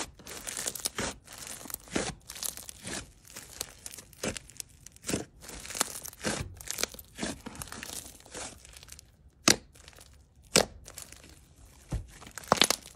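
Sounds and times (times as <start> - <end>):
slime squishing and crackling: 0.0 - 12.9
sharp slime pops: 9.4 - 9.8, 10.4 - 11.0.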